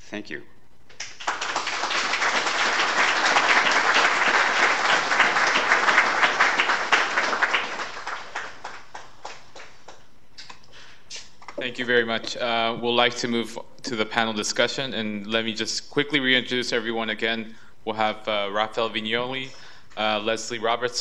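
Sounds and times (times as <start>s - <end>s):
audience applauding: 0.9s - 10.0s.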